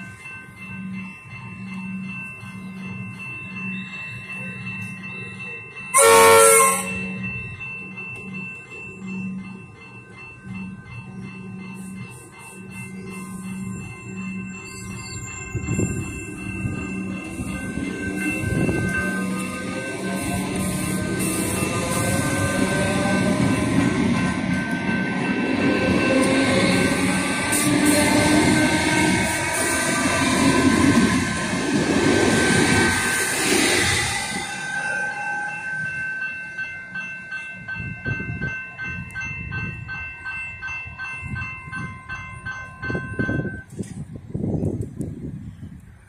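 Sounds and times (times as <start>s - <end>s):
level-crossing bells ringing: 0.0s - 43.7s
wheels rumbling on rail: 0.0s - 46.0s.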